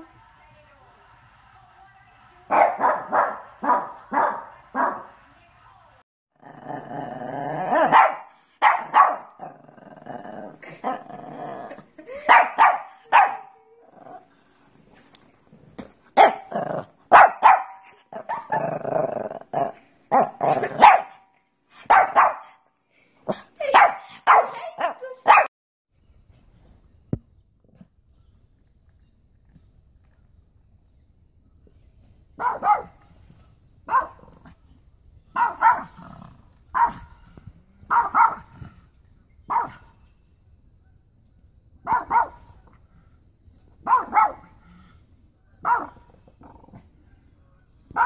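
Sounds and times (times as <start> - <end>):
dogs barking: 2.5 - 5.1, 7.7 - 9.6, 12.1 - 13.6, 16.2 - 18.7, 19.6 - 21.2, 21.8 - 22.6, 23.3 - 25.5, 32.4 - 33.0, 33.9 - 34.3, 35.3 - 36.0, 36.7 - 37.1, 37.9 - 38.6, 39.5 - 39.9, 41.8 - 42.6, 43.8 - 44.6, 45.6 - 46.0
dog growling: 6.4 - 8.0, 9.2 - 12.2, 13.8 - 14.4, 16.4 - 17.0, 18.1 - 20.8, 35.8 - 36.6, 46.2 - 47.0.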